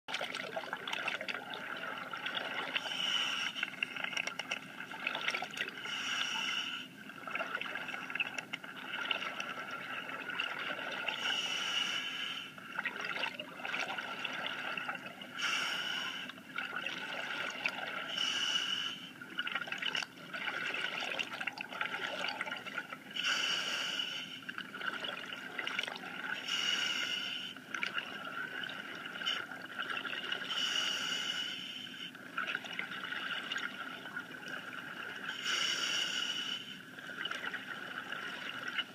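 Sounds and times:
water sloshing and trickling: 0.1s - 6.0s, 6.8s - 11.3s, 12.6s - 15.4s, 16.2s - 18.2s, 19.0s - 23.2s, 24.4s - 26.5s, 27.5s - 30.6s, 32.1s - 35.4s, 36.8s - 38.9s.

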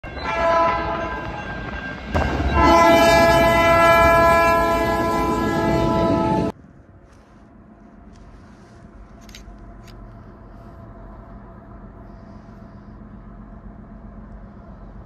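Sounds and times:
train noise: 0.0s - 15.0s
train air horn chord: 0.2s - 1.1s, 2.5s - 6.5s.

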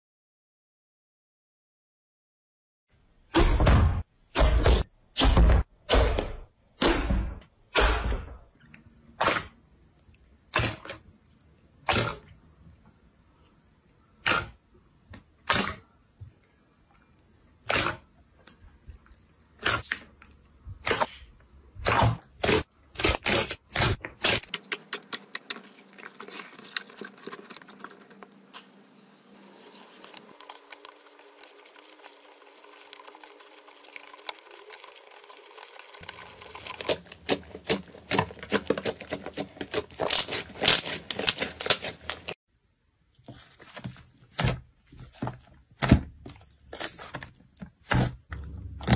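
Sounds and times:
foamy slime crackling: 25.0s - 28.5s, 29.4s - 42.4s.

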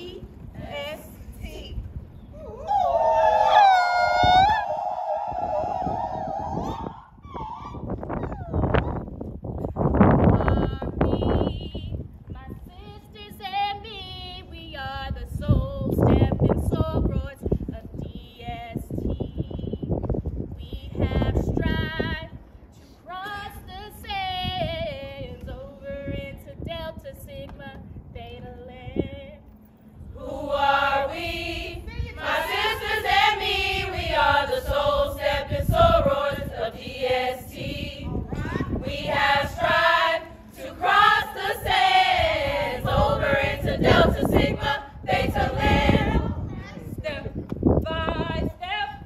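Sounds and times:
women singing in chorus: 30.1s - 46.4s.

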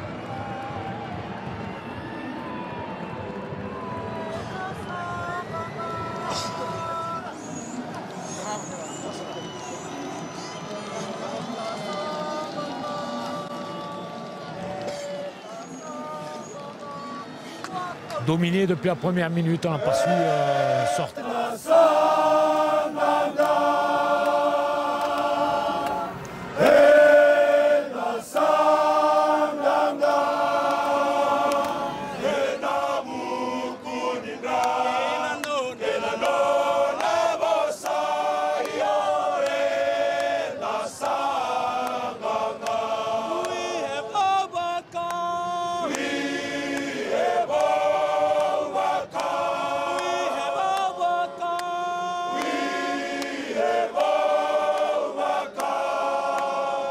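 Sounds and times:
men singing a hymn in harmony: 19.9s - 56.9s.

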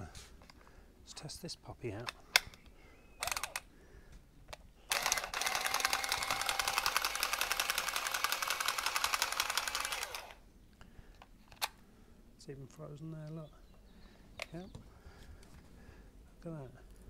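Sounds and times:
pipe cutter motor ticking: 4.9s - 10.3s.

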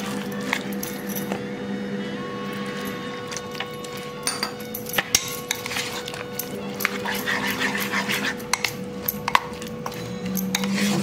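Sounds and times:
batter squelching: 0.0s - 1.5s, 2.3s - 11.0s
spoon clinking against bowl: 2.5s - 11.0s.

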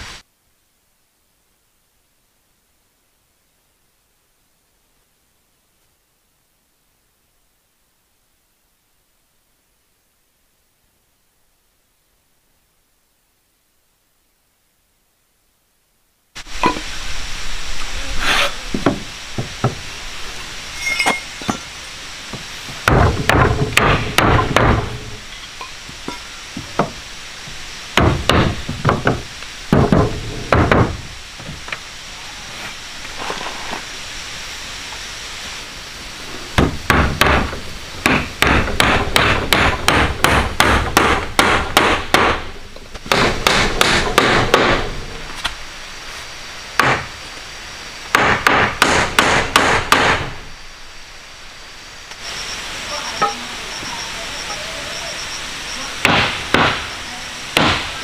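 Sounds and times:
hammer striking wood: 22.8s - 25.0s, 26.6s - 27.0s, 28.0s - 31.0s, 36.6s - 44.9s, 46.8s - 47.1s, 48.1s - 50.3s, 56.0s - 56.9s, 57.6s - 57.9s.

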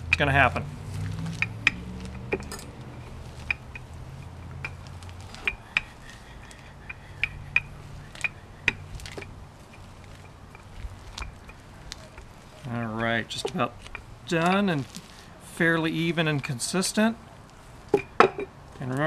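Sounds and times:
plastic bag crinkling: 13.5s - 15.3s.

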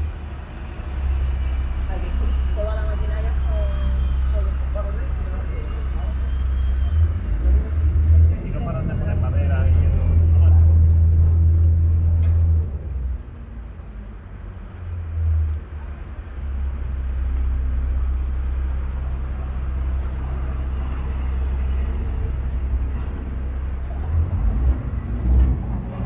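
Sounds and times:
boat diesel engine droning: 0.0s - 26.0s.

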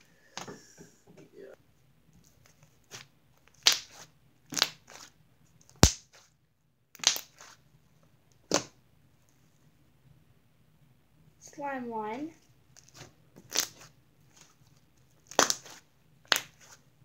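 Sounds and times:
slime popping and crackling: 2.9s - 5.1s, 5.7s - 6.3s, 6.9s - 7.6s, 12.7s - 16.8s.

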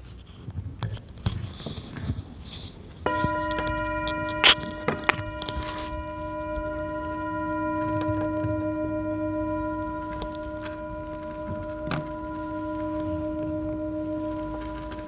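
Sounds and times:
bell ringing: 3.1s - 15.0s.

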